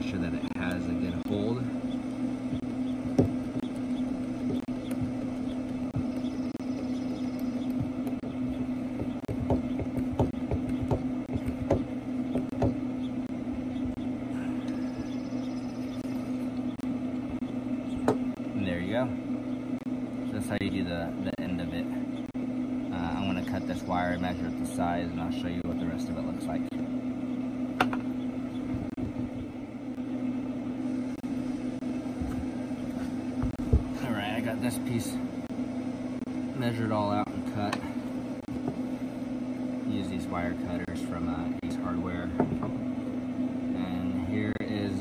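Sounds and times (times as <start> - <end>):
grill humming: 0.0 - 45.0
footsteps on wooden deck: 2.5 - 7.0, 7.6 - 12.8, 32.1 - 34.0.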